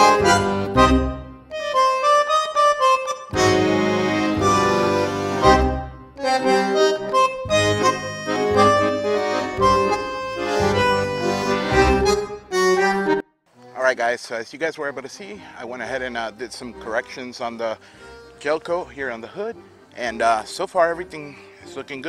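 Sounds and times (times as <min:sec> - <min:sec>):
music with sustained chords: 0:00.0 - 0:12.6.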